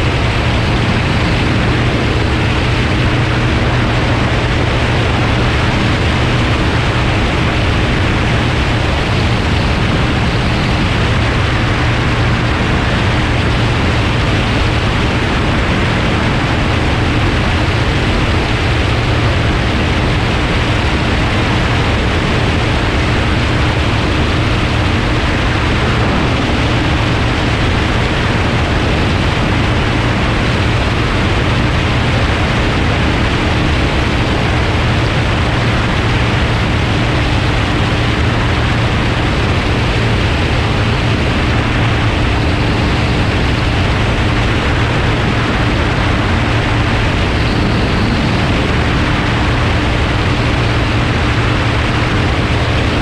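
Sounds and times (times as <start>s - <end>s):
propeller engine drone: 0.0s - 53.0s
rush of airflow: 0.0s - 53.0s.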